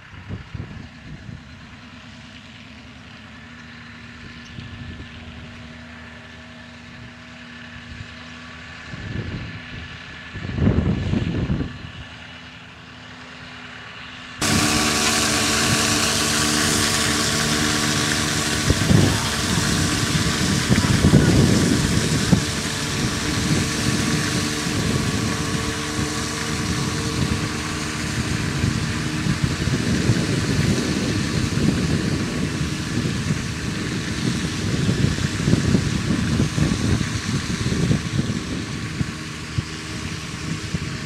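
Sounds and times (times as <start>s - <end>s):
wind on microphone: 9.0s - 12.0s, 14.4s - 41.0s
slurry spraying hiss: 14.4s - 37.4s
tractor engine running: 14.4s - 41.0s.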